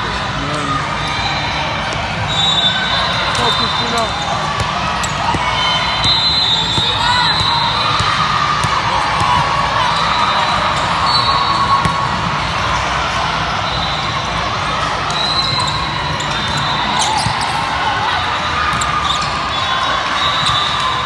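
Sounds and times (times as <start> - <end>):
many voices in large hall: 0.0 - 21.0
volleyballs hit and bouncing: 3.2 - 11.0, 11.6 - 13.0.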